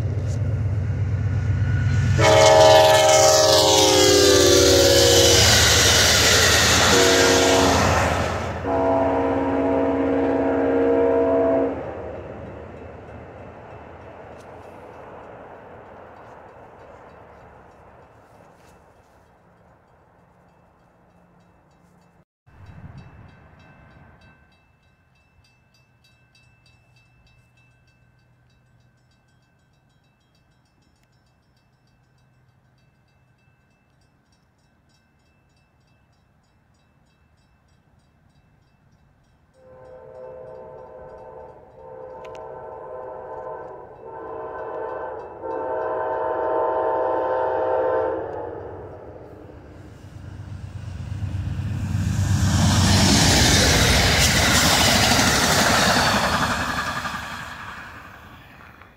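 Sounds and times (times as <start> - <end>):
train air horn blasts: 2.0 - 12.2, 39.5 - 50.6.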